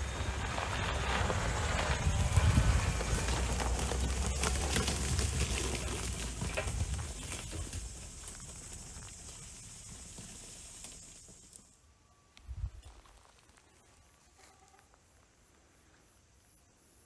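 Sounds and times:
car engine and tyre rumble: 0:00.0 - 0:11.7
twigs snapping under tyres: 0:01.3 - 0:11.7.

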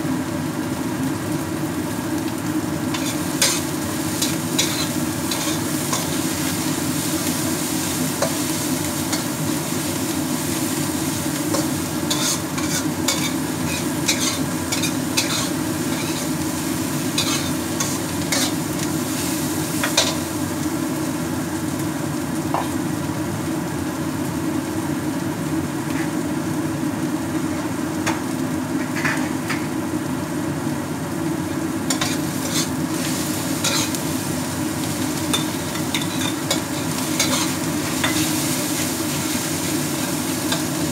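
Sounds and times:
vegetables sizzling in oil: 0:00.0 - 0:40.9
metal tongs scraping a wok: 0:02.9 - 0:06.7, 0:11.5 - 0:16.3, 0:17.1 - 0:18.7, 0:31.9 - 0:34.0, 0:35.2 - 0:39.3.

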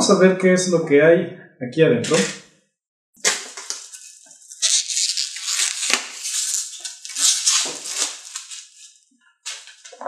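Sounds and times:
plastic shrink wrap crinkling: 0:03.2 - 0:10.0.

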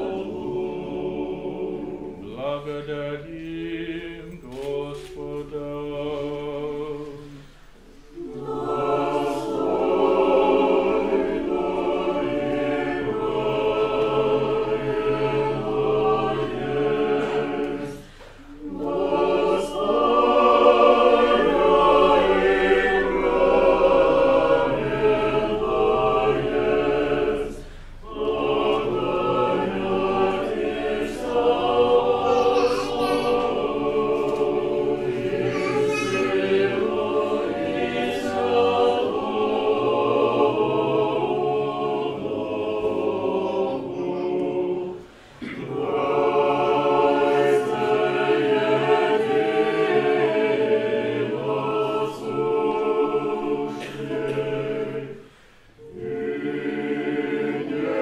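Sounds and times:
choir singing a cappella chant: 0:00.0 - 0:58.0.

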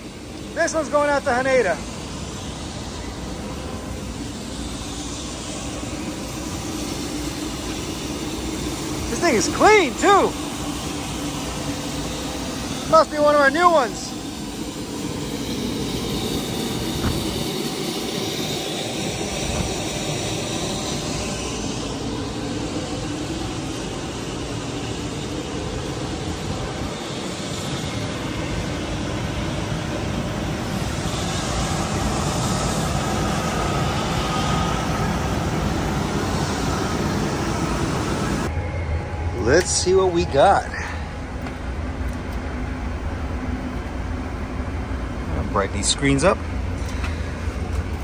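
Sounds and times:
faint whine: 0:00.0 - 0:48.0
jet aircraft roar: 0:00.0 - 0:48.0.

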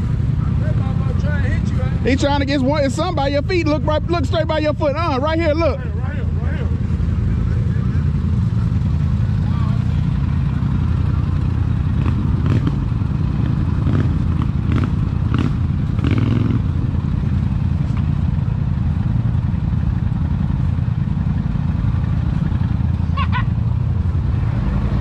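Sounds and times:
engine idling: 0:00.0 - 0:25.0.

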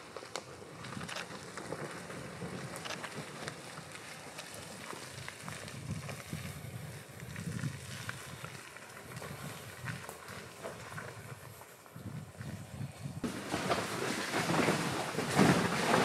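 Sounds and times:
tyres crackling over leaves: 0:00.0 - 0:16.0
vehicle engine and tyres rumbling: 0:00.0 - 0:16.0.

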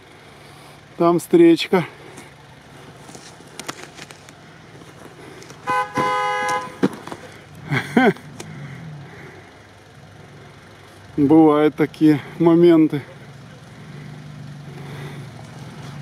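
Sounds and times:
car horn toot: 0:05.6 - 0:07.0.

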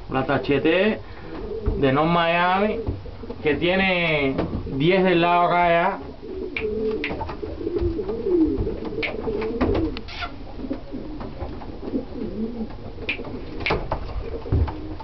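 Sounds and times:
pigeons cooing: 0:00.0 - 0:15.0
sharp clicks or knocks: 0:12.7 - 0:14.8.

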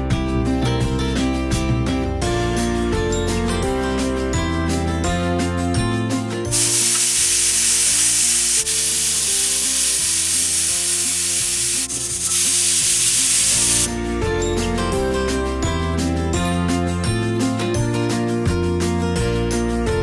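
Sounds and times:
background music: 0:00.0 - 0:20.0
pressure cooker steam hissing: 0:06.5 - 0:13.9.

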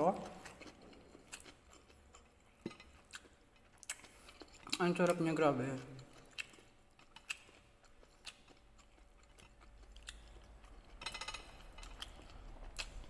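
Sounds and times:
person chewing: 0:00.0 - 0:13.0.

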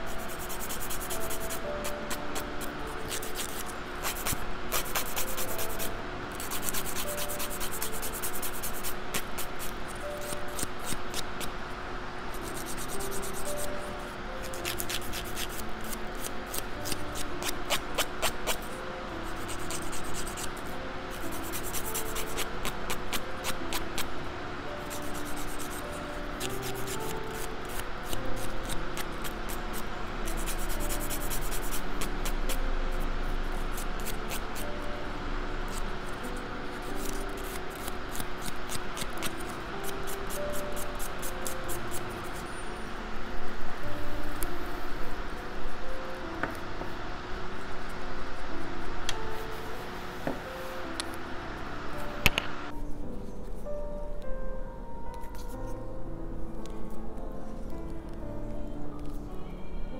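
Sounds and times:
light background music: 0:00.0 - 0:59.9
nail file rasping: 0:00.1 - 0:11.5, 0:12.4 - 0:13.5, 0:14.5 - 0:18.7, 0:19.3 - 0:24.1, 0:24.9 - 0:32.6, 0:33.6 - 0:34.6, 0:35.7 - 0:42.0.

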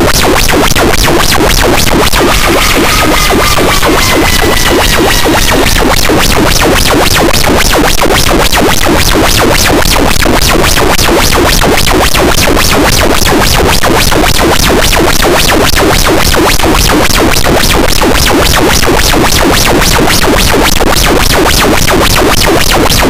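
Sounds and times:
pulsing distorted noise wall: 0:00.0 - 0:15.3.

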